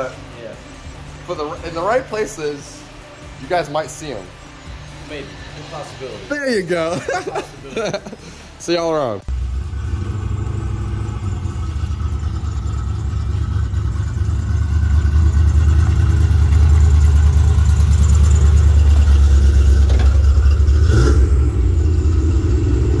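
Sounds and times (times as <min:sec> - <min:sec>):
car engine rumbling: 0:09.2 - 0:23.0.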